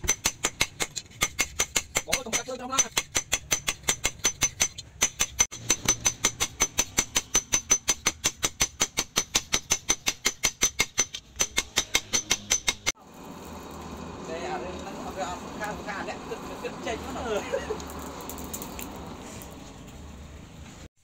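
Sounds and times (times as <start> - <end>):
hammer striking hot metal on anvil: 0.0 - 12.9.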